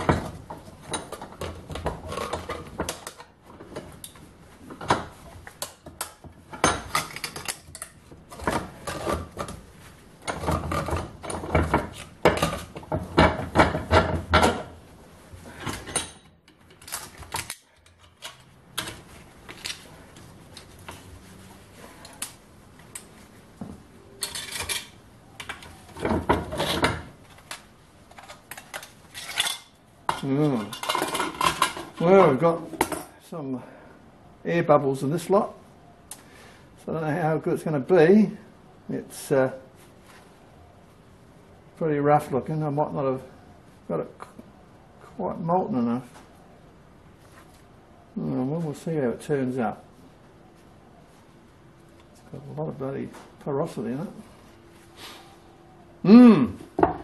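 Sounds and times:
sheet tin clinking and scraping: 24.2 - 25.0, 28.1 - 33.1.

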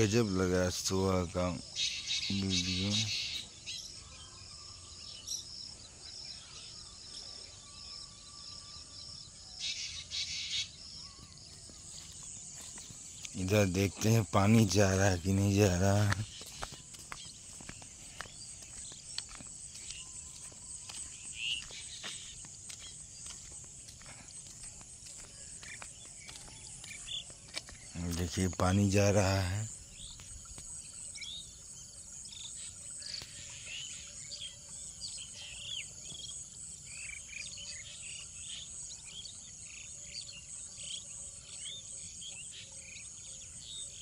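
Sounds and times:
insects chirring: 0.0 - 44.0
footsteps on pavement: 11.2 - 13.8, 14.8 - 28.2.

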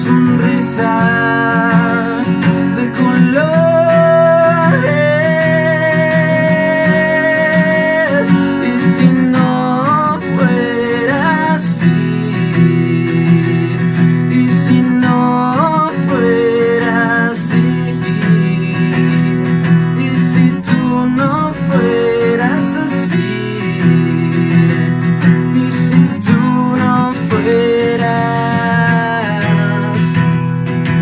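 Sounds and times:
acoustic guitar strumming: 0.0 - 31.0
man singing: 0.0 - 31.0
electric bass: 17.6 - 27.4.

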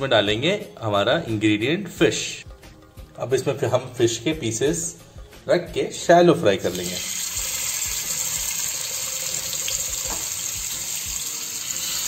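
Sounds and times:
fish sizzling in frying pan: 6.7 - 12.0.

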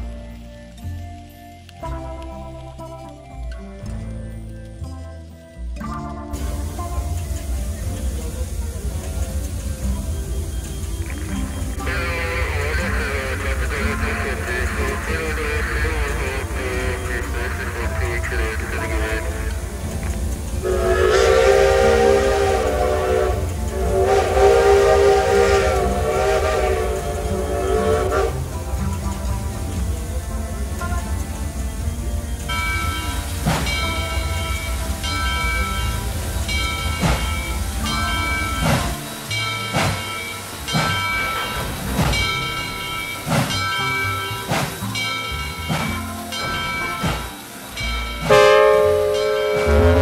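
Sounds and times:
sustained music chords: 0.0 - 50.0
steam locomotive whistle blasts: 6.4 - 19.8, 20.5 - 29.1, 32.5 - 50.0
sharp musical hits: 32.5 - 50.0.

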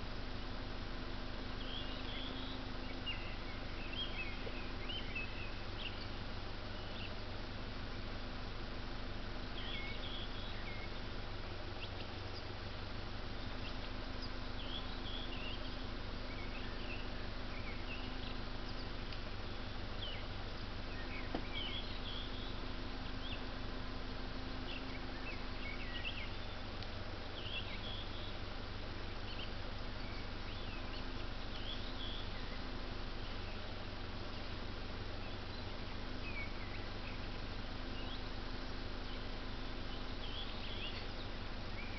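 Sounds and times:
low hum and hiss: 0.0 - 41.9
songbirds chirping: 0.0 - 41.9.

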